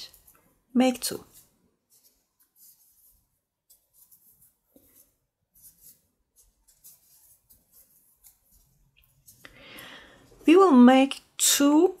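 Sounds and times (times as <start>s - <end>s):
yarn rustling with crochet hook: 0.0s - 9.6s.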